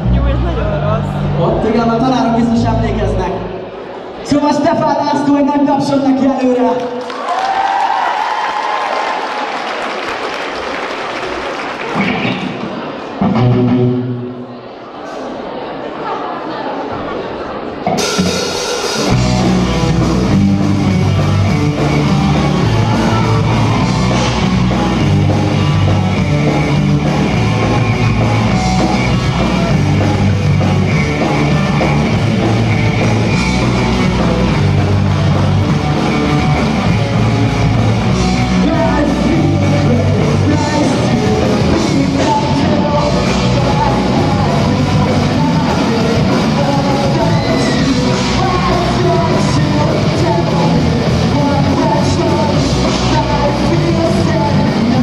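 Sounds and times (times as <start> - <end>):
live rock band playing: 11.8 - 14.5, 17.8 - 55.0
person singing: 38.3 - 55.0.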